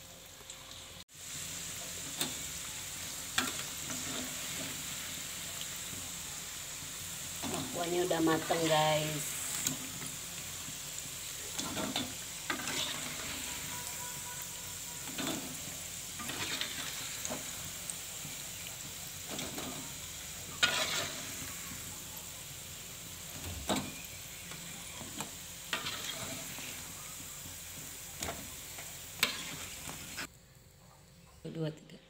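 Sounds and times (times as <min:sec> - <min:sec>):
fritters sizzling in hot oil: 0:00.0 - 0:31.2
metal spatula scraping pan: 0:11.5 - 0:14.0, 0:16.2 - 0:17.4, 0:20.5 - 0:21.6, 0:25.0 - 0:26.9, 0:29.2 - 0:30.3.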